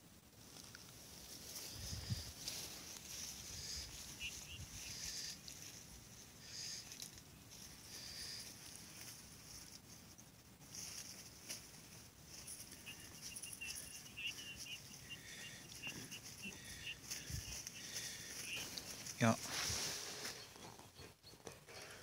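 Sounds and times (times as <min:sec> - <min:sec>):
faint birdsong chirps: 0:01.4 - 0:22.0
rapid bird trill: 0:03.3 - 0:07.0, 0:11.9 - 0:22.0.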